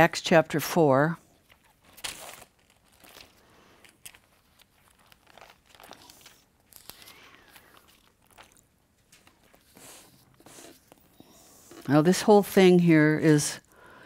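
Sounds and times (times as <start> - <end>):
thin pages turning: 1.4 - 11.0.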